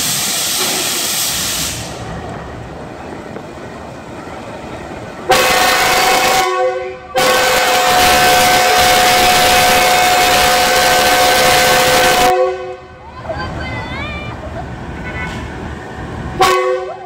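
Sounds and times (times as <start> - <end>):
loud hiss of air: 0.0 - 2.2
locomotive air horn chord: 5.3 - 13.0, 16.4 - 17.0.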